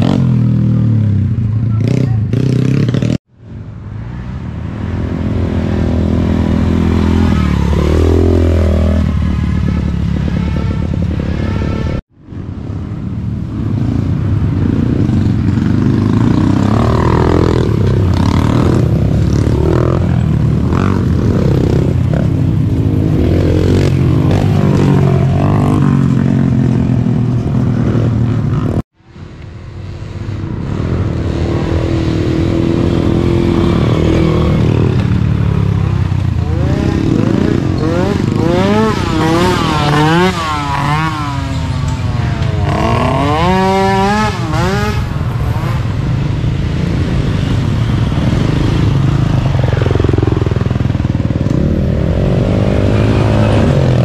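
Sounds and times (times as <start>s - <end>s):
atv engines revving: 0.0s - 3.2s, 4.0s - 12.0s, 12.6s - 54.0s.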